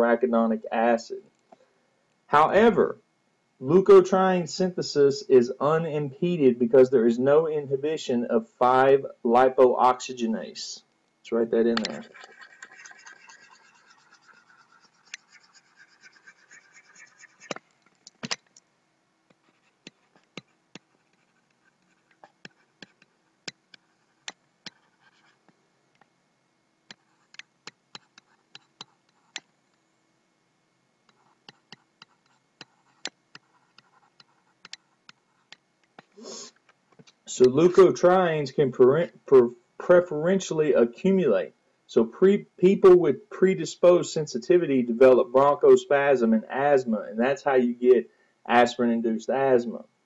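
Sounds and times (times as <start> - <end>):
stylus scratching on tablet: 11.7 - 18.5, 19.3 - 25.6, 26.9 - 29.5, 31.0 - 36.5
pen tapping on tablet: 19.3 - 24.8, 26.9 - 29.4, 31.4 - 36.1.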